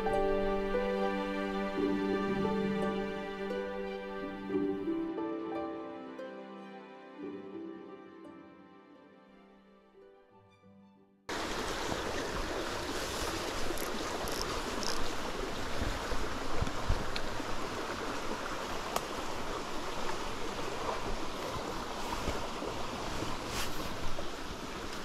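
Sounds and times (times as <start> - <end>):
water running over stones: 11.3 - 25.0.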